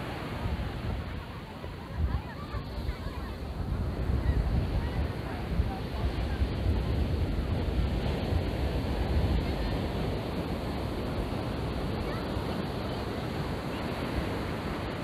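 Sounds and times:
surf breaking on beach: 0.0 - 15.0
wind buffeting microphone: 0.0 - 15.0.

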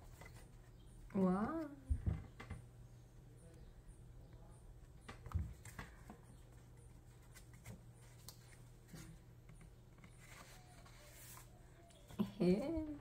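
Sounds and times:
paper and card rustling: 5.2 - 12.6.

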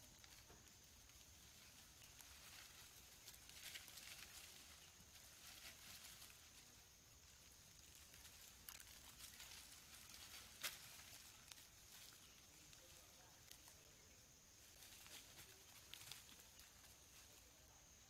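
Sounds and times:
faint steady hiss: 0.0 - 18.0
rustling of dry leaves and twigs: 0.0 - 18.0
twigs snapping: 7.4 - 13.8.

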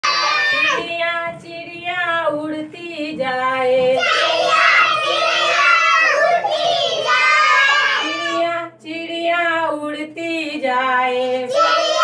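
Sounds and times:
children singing: 0.0 - 0.9, 3.8 - 8.6, 11.0 - 12.0
woman singing: 0.6 - 4.0, 8.0 - 11.5.

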